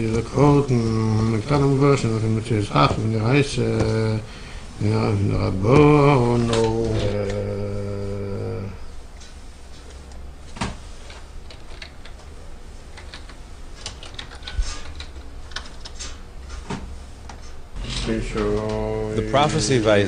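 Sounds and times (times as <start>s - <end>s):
steady low hum: 0.0s - 20.0s
typing on computer keyboard: 11.4s - 12.3s, 12.9s - 16.0s.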